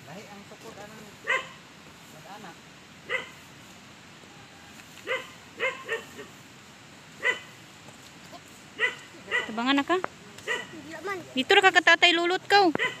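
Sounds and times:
dog barking: 1.2 - 1.6, 3.1 - 3.4, 5.0 - 6.3, 7.2 - 7.6, 8.8 - 9.6, 10.4 - 10.9, 12.8 - 13.0.

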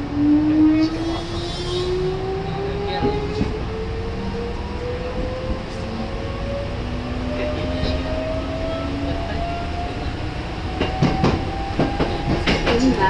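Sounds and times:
electric train drive whine: 0.0 - 13.0
wheels clattering over rail joints: 10.7 - 13.0.

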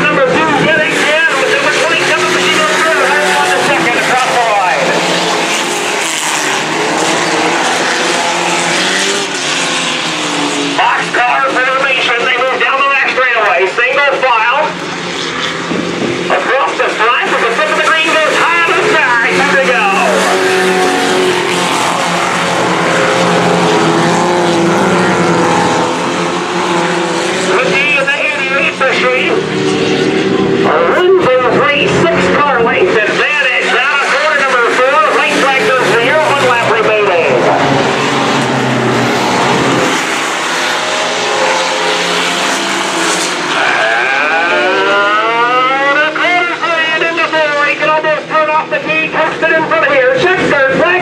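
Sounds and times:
race truck engines running hard: 0.0 - 51.0.

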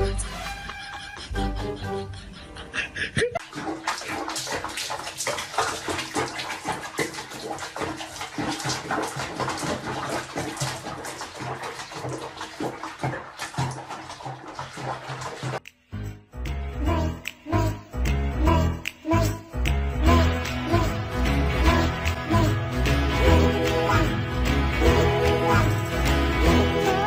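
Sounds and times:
water sloshing and splashing: 3.4 - 15.6.

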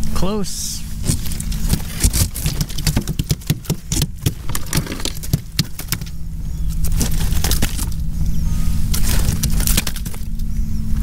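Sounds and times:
steady low hum: 0.0 - 11.0
fish rattling in net on kayak: 1.0 - 8.1, 8.9 - 10.4.

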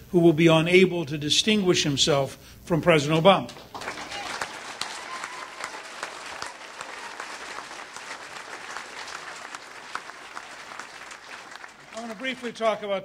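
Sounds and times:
audience applauding: 3.5 - 12.9.

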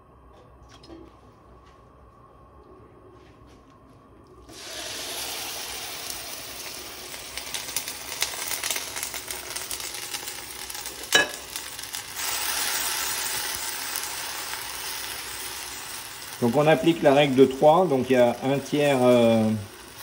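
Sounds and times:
onions sizzling in a pan: 4.5 - 20.0.

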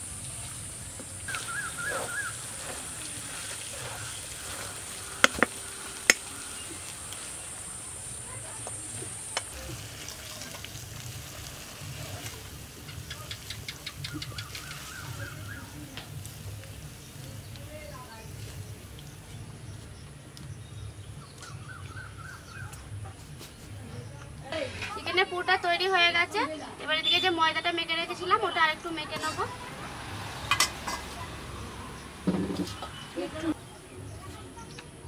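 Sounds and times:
metal cookware clinking: 30.4 - 31.2.

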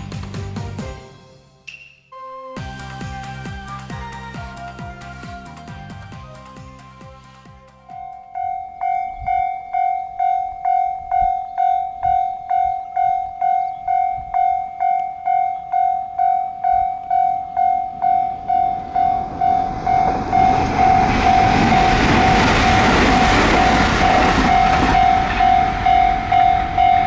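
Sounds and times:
electric train rumbling: 0.0 - 1.6, 2.6 - 27.0
level crossing warning bell: 7.9 - 27.0.

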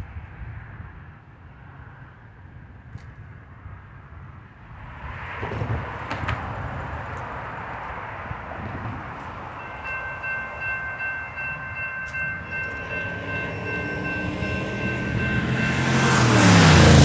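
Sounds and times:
train approaching: 8.5 - 17.0
crossing warning bell ringing: 9.5 - 17.0.

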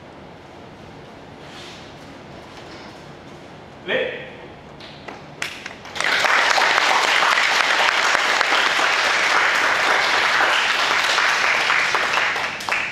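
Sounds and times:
group applauding: 5.4 - 12.9.

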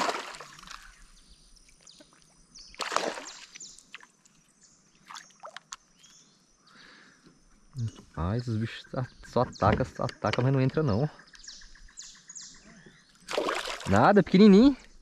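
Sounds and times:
fish splashing at lure: 2.8 - 4.1, 13.3 - 14.0.

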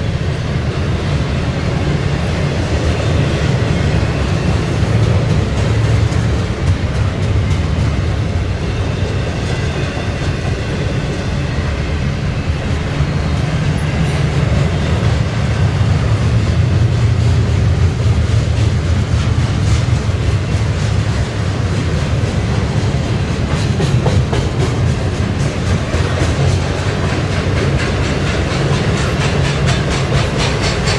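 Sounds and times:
train wheels rumbling on rails: 0.0 - 30.9
wheels clicking over rail joints: 12.8 - 30.9.

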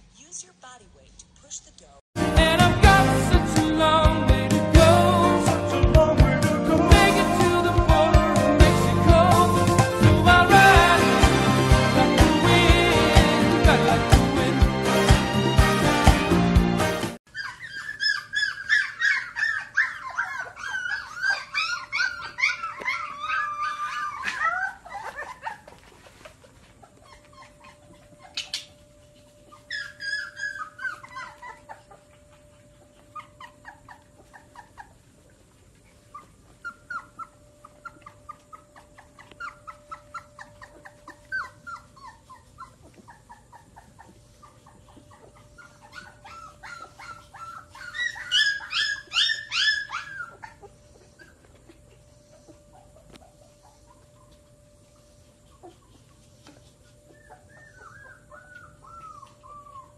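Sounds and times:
puppies whimpering and whining: 17.2 - 59.9.

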